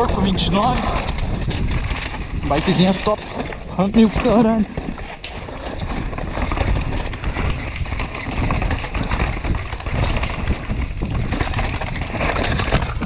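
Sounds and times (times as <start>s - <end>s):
bike rattling: 0.0s - 13.0s
bike tyres rumbling on dirt trail: 0.0s - 13.0s
wind buffeting microphone: 0.0s - 13.0s.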